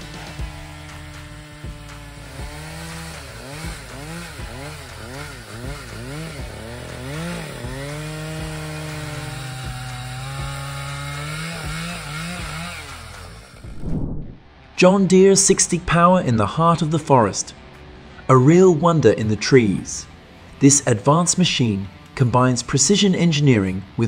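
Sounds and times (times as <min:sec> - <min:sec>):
chainsaw cutting log: 0:00.0 - 0:13.8.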